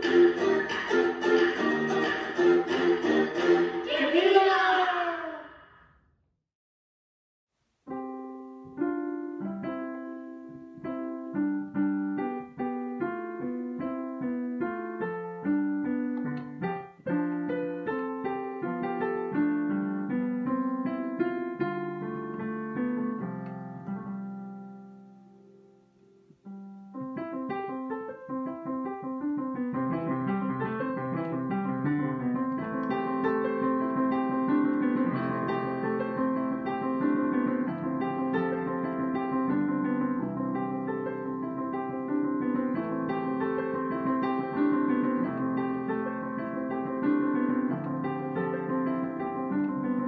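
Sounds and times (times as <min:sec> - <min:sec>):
upright piano: 0:00.0 - 0:04.5, 0:07.8 - 0:50.0.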